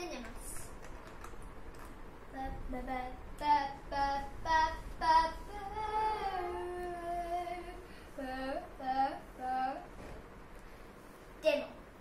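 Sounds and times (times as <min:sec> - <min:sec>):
girl singing wordlessly: 0:02.3 - 0:10.2, 0:11.4 - 0:12.0.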